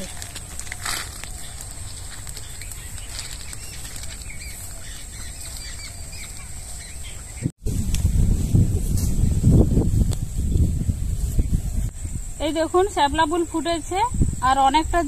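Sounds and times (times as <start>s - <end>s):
footsteps through grass: 0.0s - 11.9s
wind buffeting microphone: 0.0s - 15.0s
bird chirps: 1.1s - 7.5s.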